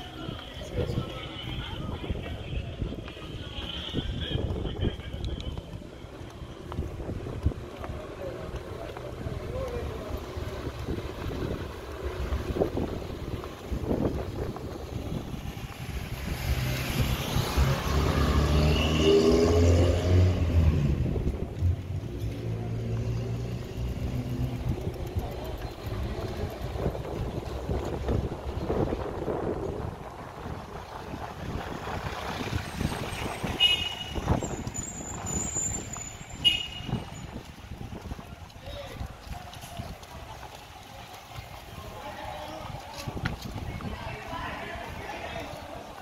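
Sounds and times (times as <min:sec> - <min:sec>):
wind on microphone: 0:00.0 - 0:08.5, 0:09.2 - 0:18.3, 0:23.8 - 0:46.0
motor vehicle running: 0:00.0 - 0:46.0
car driving past: 0:15.5 - 0:24.9.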